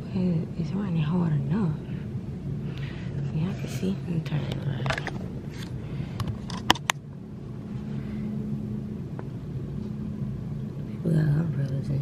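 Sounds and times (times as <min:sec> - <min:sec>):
faint hum: 0:00.0 - 0:12.0
steady low rumble: 0:00.0 - 0:12.0.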